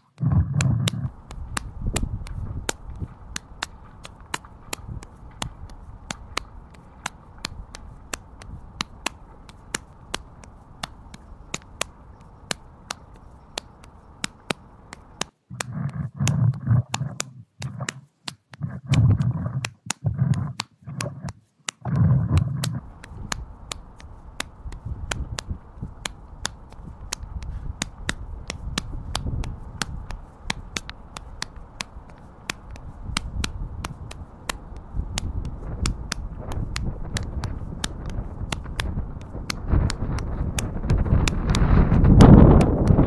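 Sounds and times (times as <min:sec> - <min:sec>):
sharp clicks: 0:00.0 - 0:43.0
wind rumbling on microphone: 0:00.2 - 0:18.0, 0:18.6 - 0:43.0.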